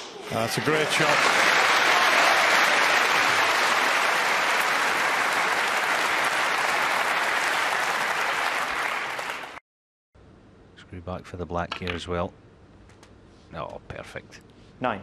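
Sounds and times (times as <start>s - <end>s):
audience applauding: 0.4s - 9.6s.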